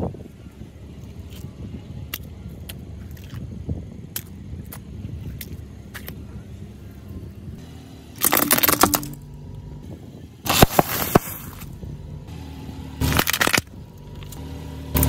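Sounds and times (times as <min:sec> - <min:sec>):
car engine rumble: 0:00.0 - 0:15.0
tyre crushing brittle objects: 0:08.2 - 0:09.2, 0:10.5 - 0:11.7, 0:13.0 - 0:14.4.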